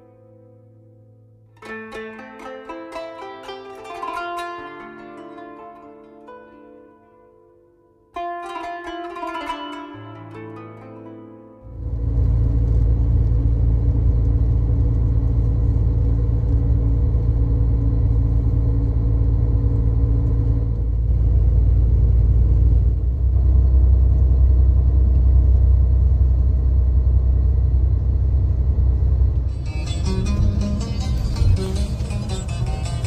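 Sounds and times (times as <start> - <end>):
bus engine and road rumble: 11.7 - 33.0.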